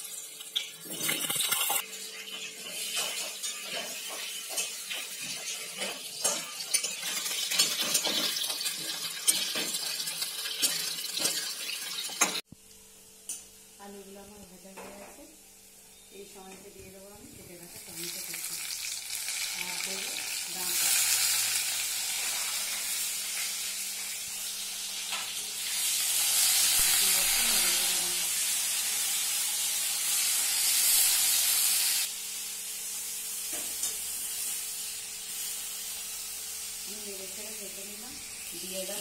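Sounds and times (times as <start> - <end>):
vegetables sizzling in hot oil: 0.0 - 12.5, 15.2 - 39.0
spatula stirring in a wok: 1.7 - 12.3.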